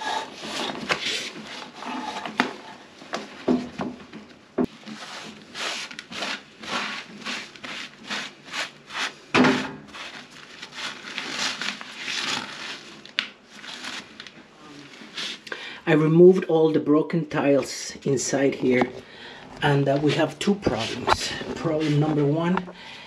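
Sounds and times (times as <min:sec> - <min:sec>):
paper towel rubbing floor: 0:00.0 - 0:02.8, 0:04.6 - 0:14.1, 0:14.9 - 0:15.4, 0:19.6 - 0:22.6.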